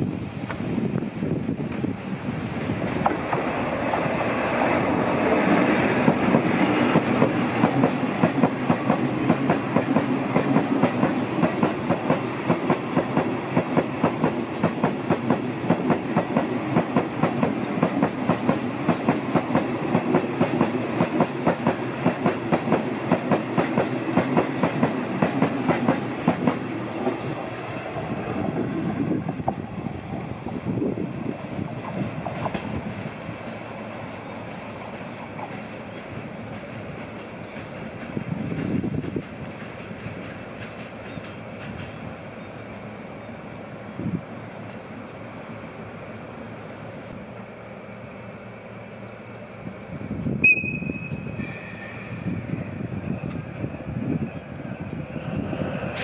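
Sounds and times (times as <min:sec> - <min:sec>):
train rumble: 0:00.0 - 0:56.0
wheels clicking over rail joints: 0:31.5 - 0:42.2.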